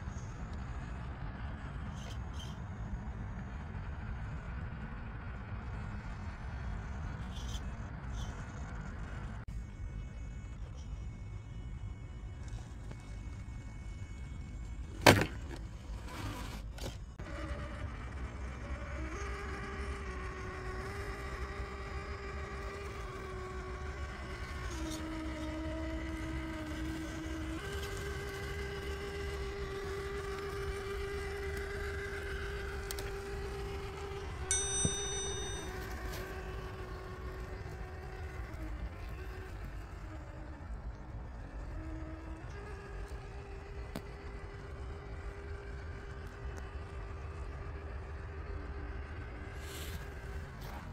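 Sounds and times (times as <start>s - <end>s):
motor and gear whine: 0.0s - 50.9s
metallic clink: 34.5s - 35.8s.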